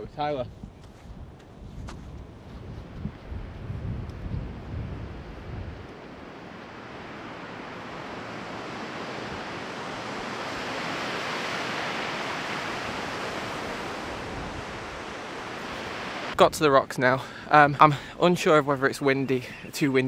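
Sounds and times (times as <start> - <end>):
surf breaking against cliffs: 4.4 - 18.0.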